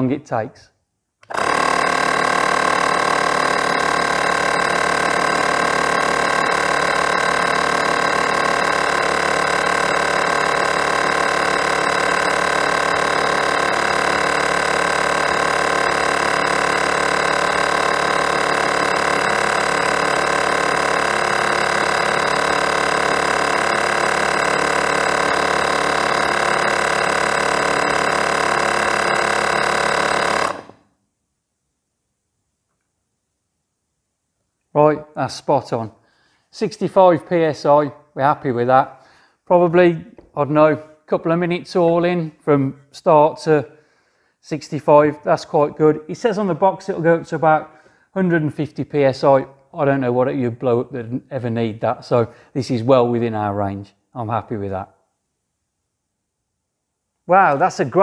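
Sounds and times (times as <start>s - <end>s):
mini air compressor running: 1.2s - 30.9s.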